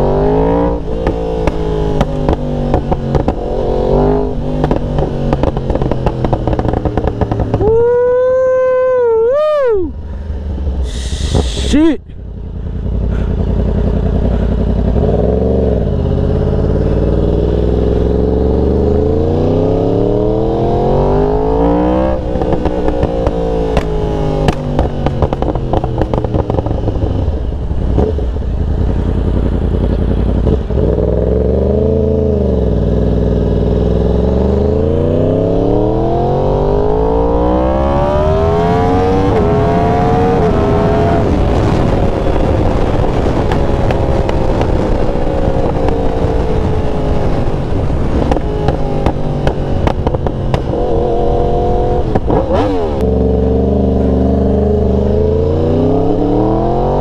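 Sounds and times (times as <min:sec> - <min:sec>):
motorcycle engine accelerating: 0:00.0 - 0:57.0
exhaust crackles and pops: 0:00.9 - 0:03.5, 0:04.5 - 0:07.8, 0:22.4 - 0:27.1, 0:40.2 - 0:50.9, 0:52.0 - 0:53.2.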